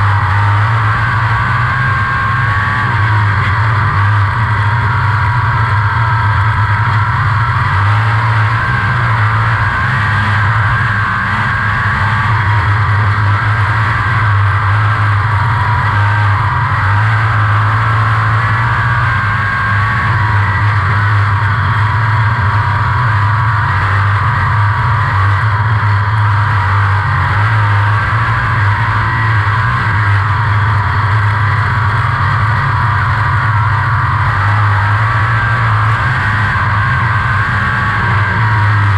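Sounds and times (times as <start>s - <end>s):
racing car engine running hard: 0.0s - 38.9s.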